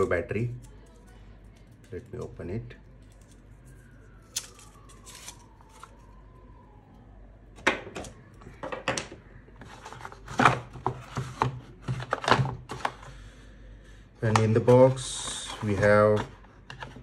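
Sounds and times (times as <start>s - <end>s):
packaging crinkling and rustling: 0.6s - 6.2s.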